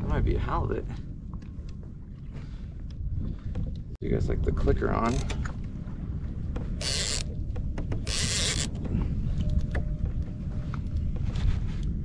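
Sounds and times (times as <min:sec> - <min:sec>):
wind rumble on microphone: 0:00.0 - 0:12.0
fishing reel clicker buzzing: 0:06.8 - 0:07.3, 0:08.1 - 0:08.7.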